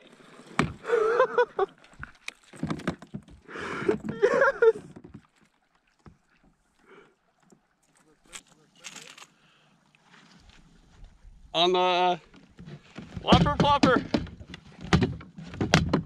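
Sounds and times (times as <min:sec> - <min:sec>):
water splashing: 0:00.0 - 0:11.0
landing net and gear clattering: 0:12.6 - 0:16.0.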